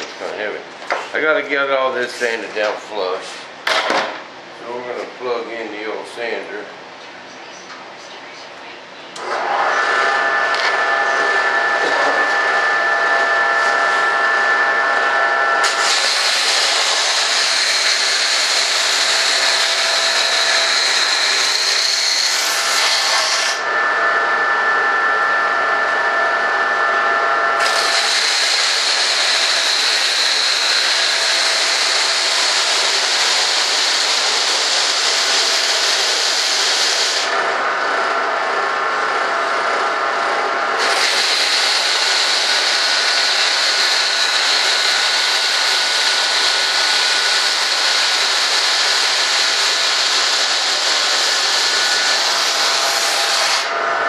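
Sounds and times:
disc sander grinding: 9.2s - 54.0s
sander motor whine: 9.2s - 54.0s.

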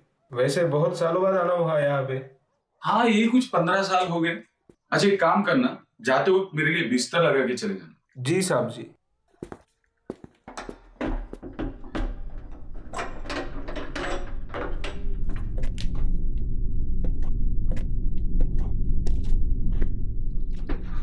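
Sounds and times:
low rumbling drone: 14.2s - 21.0s.

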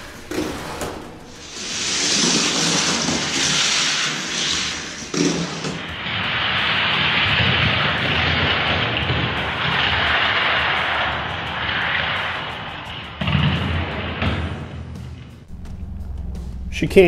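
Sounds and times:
toy cars rolling on plastic track: 1.4s - 12.3s.

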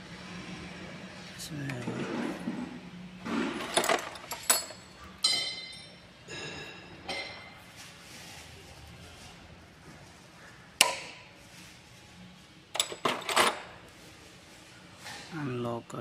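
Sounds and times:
metal tools clinking: 3.6s - 7.5s, 12.8s - 13.7s.

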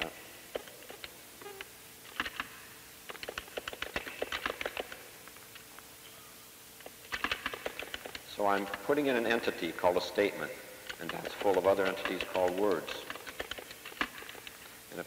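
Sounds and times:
faint steady hum: 0.0s - 15.0s
keyboard keys clicking: 10.9s - 14.5s.

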